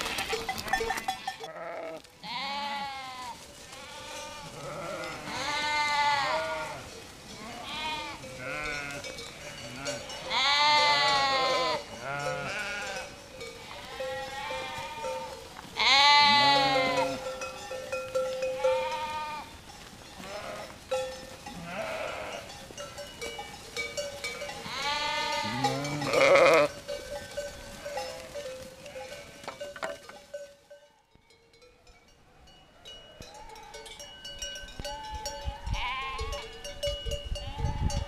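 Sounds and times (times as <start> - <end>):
sheep bleating: 0.0 - 17.4, 18.4 - 19.5, 20.2 - 20.8, 21.5 - 22.5, 24.2 - 26.8, 35.7 - 36.5
animal bells clinking: 0.0 - 38.0.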